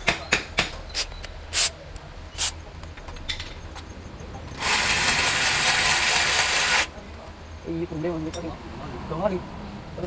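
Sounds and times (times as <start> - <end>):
tools knocking on metal: 0.0 - 0.8
spray hissing: 1.0 - 1.7, 2.4 - 2.6.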